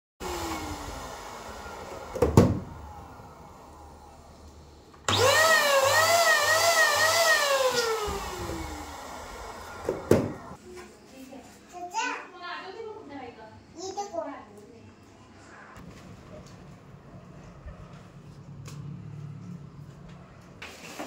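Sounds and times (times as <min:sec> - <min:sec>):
electric balloon pump whining: 0:00.2 - 0:10.6.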